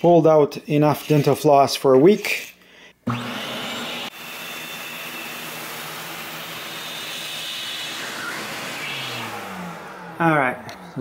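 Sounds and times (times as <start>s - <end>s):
shop vac running: 3.0s - 11.0s.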